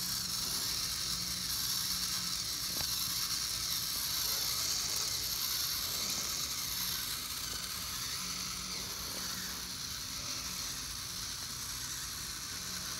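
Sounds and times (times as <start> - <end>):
small motors whirring: 0.0 - 12.9.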